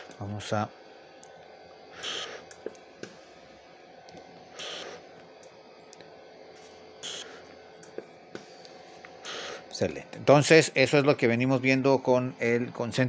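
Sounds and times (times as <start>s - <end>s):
oxygen concentrator hum: 0.0s - 13.0s
hissing puff of air: 1.9s - 3.3s, 4.5s - 5.0s, 7.0s - 7.5s, 8.3s - 9.7s.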